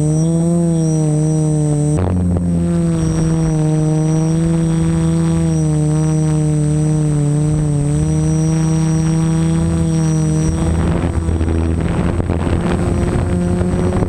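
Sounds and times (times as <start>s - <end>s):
drone motors buzzing: 0.0s - 14.0s
faint high whine: 0.0s - 14.0s.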